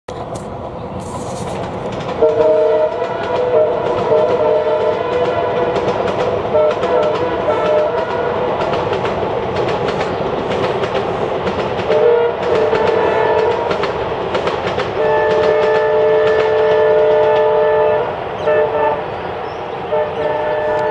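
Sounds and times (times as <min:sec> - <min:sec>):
wheels clicking over rail joints: 0:00.1 - 0:17.8
train passing at speed: 0:00.1 - 0:20.9
two-tone train horn honking: 0:02.2 - 0:08.7, 0:11.9 - 0:13.8, 0:15.0 - 0:19.2, 0:19.8 - 0:20.9.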